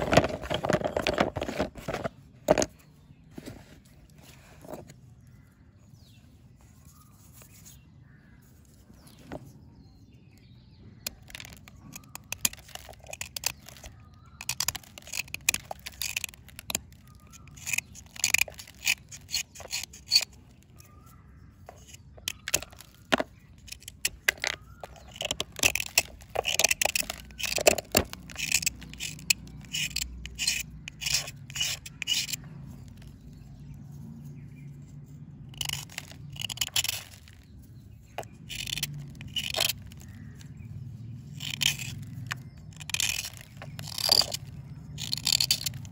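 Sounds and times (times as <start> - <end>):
knife scraping crumbly bar: 11.1 - 33.7, 35.4 - 45.9.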